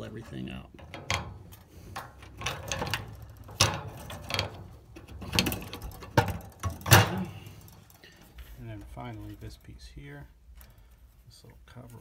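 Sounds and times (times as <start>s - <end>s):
metal clicks and knocks: 0.2s - 8.2s.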